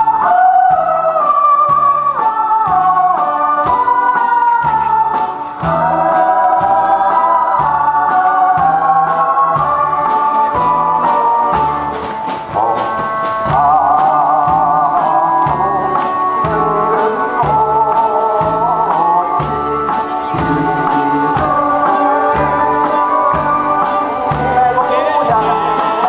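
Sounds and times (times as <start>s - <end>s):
backing track with steady beat: 0.0s - 26.0s
man singing into microphone: 12.5s - 26.0s.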